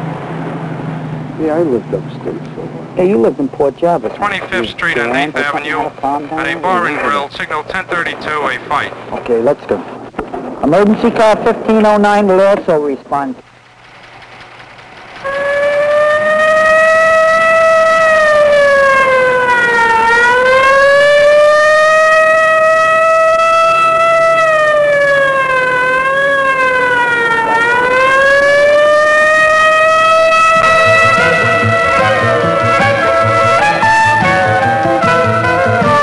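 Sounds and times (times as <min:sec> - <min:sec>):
police siren wailing: 0:15.1 - 0:36.0.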